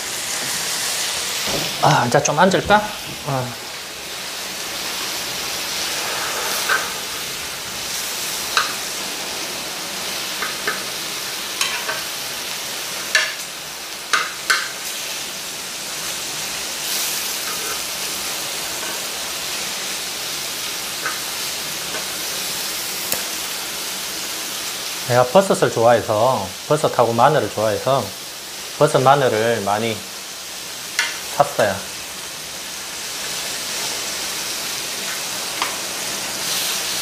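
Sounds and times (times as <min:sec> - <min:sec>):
meat sizzling in a grill pan: 0:00.0 - 0:37.0
metal tongs clicking on pan: 0:11.6 - 0:12.0, 0:14.1 - 0:14.8, 0:31.0 - 0:31.2.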